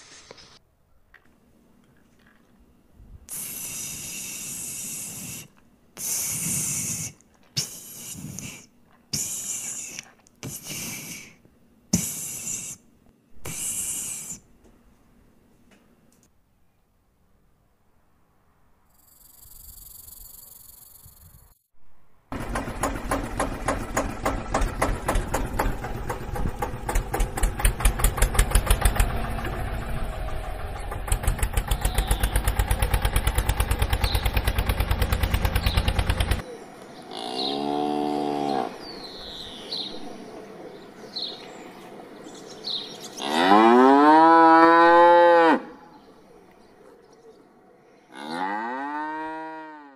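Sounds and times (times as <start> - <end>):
tractor engine running: 22.3 - 36.4
cow mooing: 37.1 - 38.8, 43.2 - 45.8, 48.1 - 49.9.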